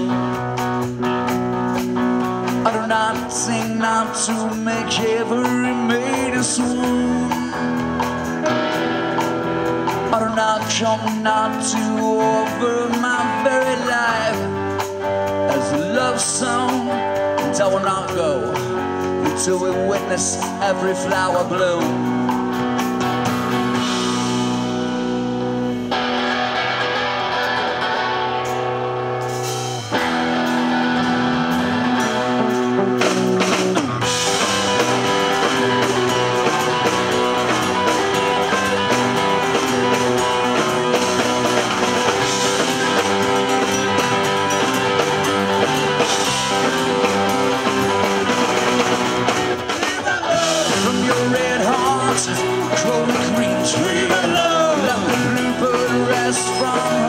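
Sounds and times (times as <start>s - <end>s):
bass guitar: 0.0s - 57.0s
drum kit: 0.0s - 57.0s
electric guitars: 0.0s - 57.0s.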